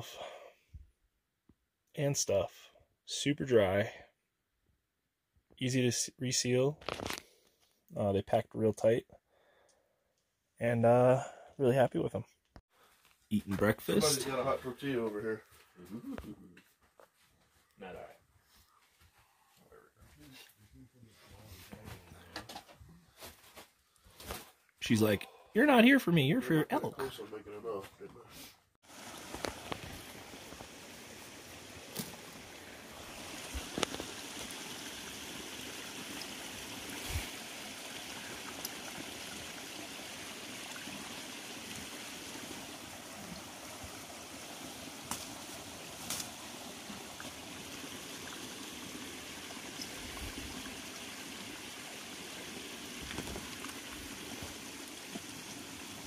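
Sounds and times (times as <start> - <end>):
small creek running: 12.7 - 28.1, 28.8 - 56.0.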